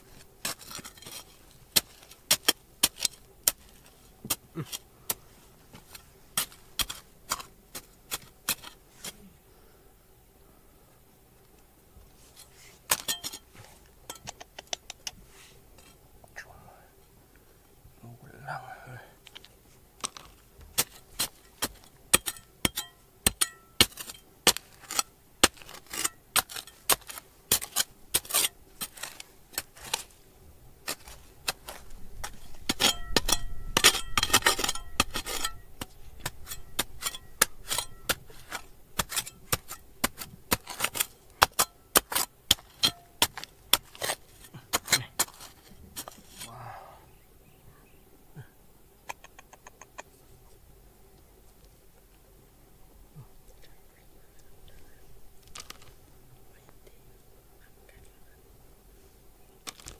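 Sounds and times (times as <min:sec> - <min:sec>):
scraping: 0:00.0 - 0:09.2, 0:12.1 - 0:14.3, 0:19.3 - 0:30.2, 0:30.8 - 0:46.6.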